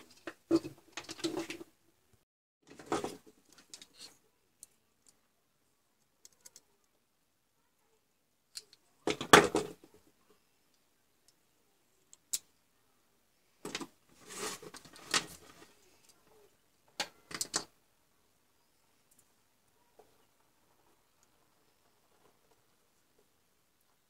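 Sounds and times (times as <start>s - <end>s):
plastic parts clicking and rattling: 16.9s - 17.7s.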